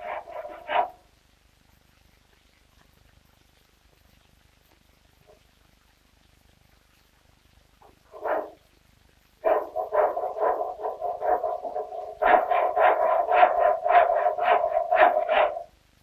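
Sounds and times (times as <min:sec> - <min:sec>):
hand saw cutting wood: 0:00.0 - 0:01.0, 0:09.4 - 0:15.7.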